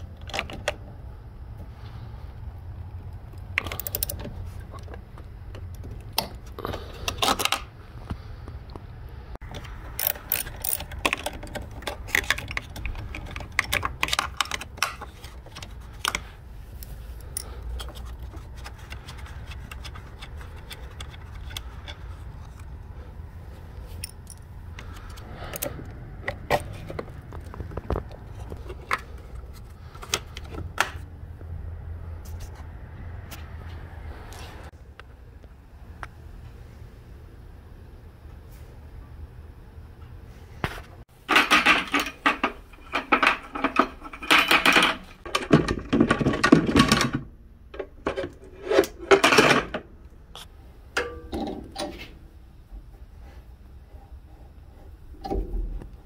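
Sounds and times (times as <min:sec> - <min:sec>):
ratchet wrench clicking: 0:03.6 - 0:04.2, 0:09.9 - 0:13.0.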